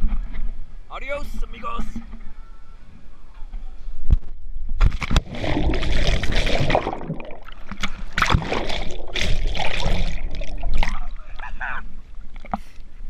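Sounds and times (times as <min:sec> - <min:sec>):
splash into water: 0:04.8 - 0:11.2
underwater churning bubbling water: 0:05.0 - 0:12.4.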